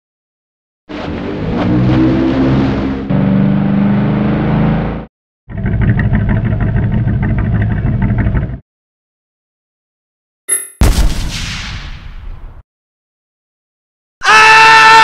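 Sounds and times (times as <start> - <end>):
rough pulsing engine: 0.9 - 8.6
motorboat engine humming: 5.5 - 8.6.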